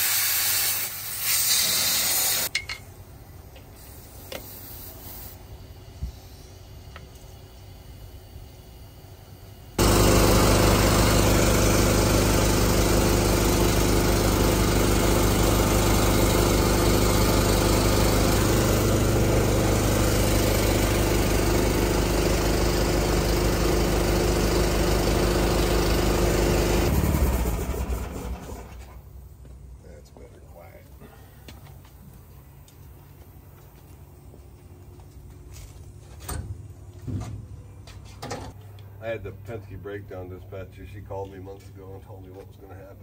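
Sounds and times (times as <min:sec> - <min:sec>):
air compressor running: 0:00.0 - 0:02.6, 0:03.6 - 0:29.3.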